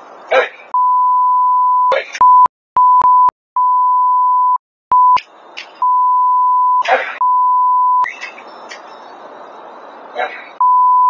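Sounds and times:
steady outdoor noise: 0:00.0 - 0:00.8, 0:01.9 - 0:02.2, 0:04.9 - 0:06.1, 0:06.7 - 0:10.7
snatches of voice: 0:00.3 - 0:00.7, 0:06.8 - 0:07.2
censor bleep: 0:00.8 - 0:05.2, 0:05.8 - 0:08.1, 0:10.6 - 0:11.0.

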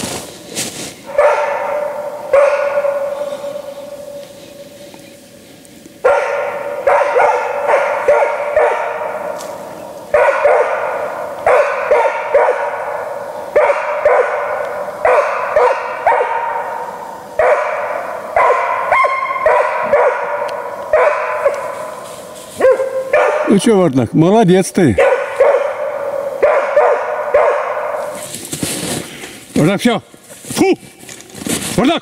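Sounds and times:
dog barking: 0:01.0 - 0:04.4, 0:06.0 - 0:23.7, 0:24.9 - 0:28.3.

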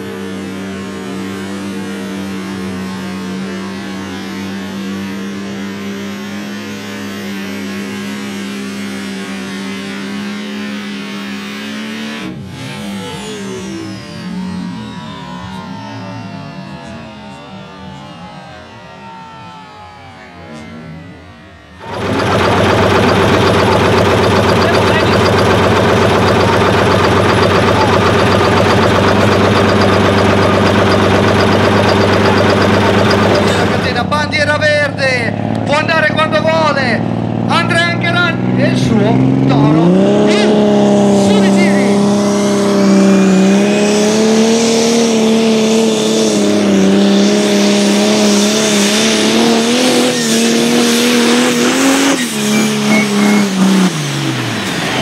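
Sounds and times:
tractor diesel engine under load: 0:20.4 - 0:55.0
tractor engine idling: 0:21.8 - 0:34.2.

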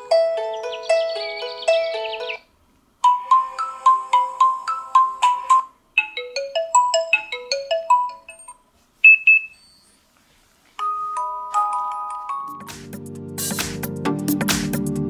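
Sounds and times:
phone alarm tone melodies: 0:03.0 - 0:10.0, 0:10.8 - 0:12.7.

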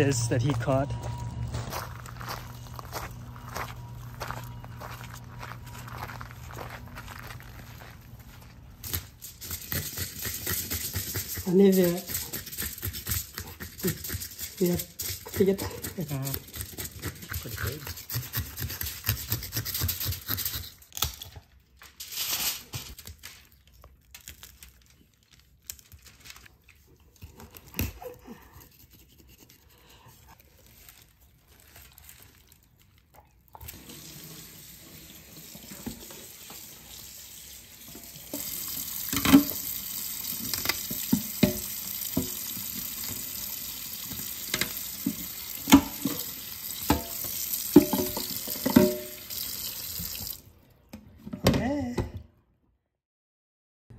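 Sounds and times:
tap running into metal sink: 0:37.9 - 0:39.8, 0:40.4 - 0:43.2, 0:44.1 - 0:46.2, 0:46.8 - 0:49.3.

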